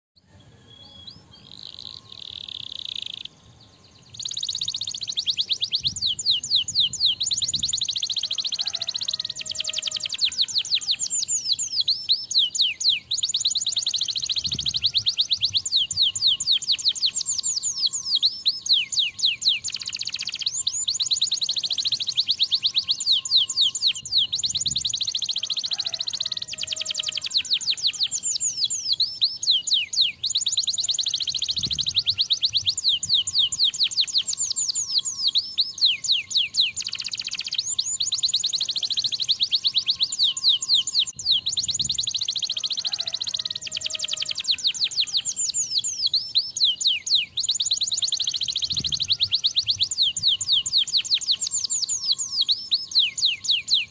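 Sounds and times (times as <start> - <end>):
canary singing trills: 0.2 - 53.9.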